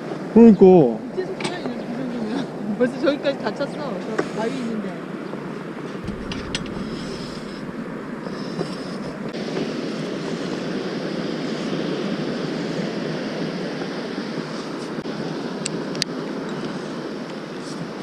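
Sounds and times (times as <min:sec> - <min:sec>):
waves breaking on beach: 0:03.8 - 0:18.0.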